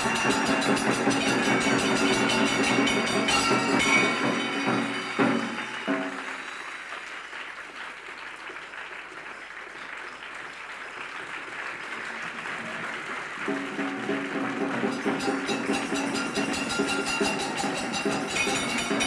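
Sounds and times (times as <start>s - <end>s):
audience applauding: 3.2s - 19.0s
pitched musical sound: 13.5s - 19.0s.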